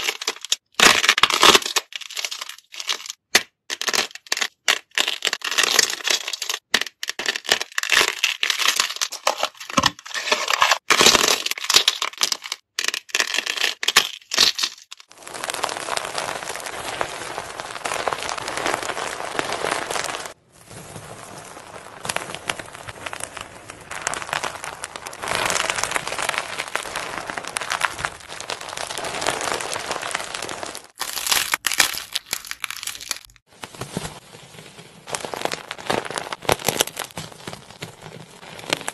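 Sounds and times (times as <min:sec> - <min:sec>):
crackly slime squishing: 0:00.0 - 0:38.9
gold leaf crinkling: 0:14.4 - 0:38.9.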